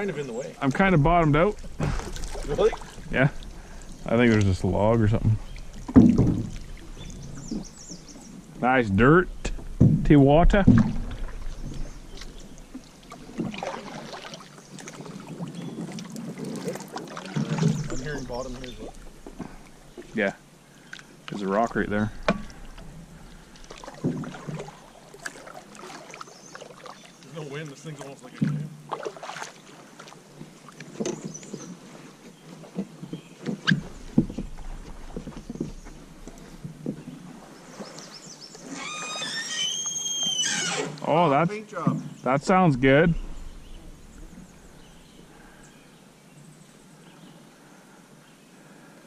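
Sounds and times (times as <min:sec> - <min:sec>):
paddle splashing in water: 0:00.0 - 0:08.6, 0:09.2 - 0:46.0
water dripping: 0:00.2 - 0:20.2, 0:20.8 - 0:30.9
paddle knocking plastic hull: 0:00.6 - 0:07.7, 0:09.4 - 0:15.0, 0:22.1 - 0:25.8, 0:32.7 - 0:37.4.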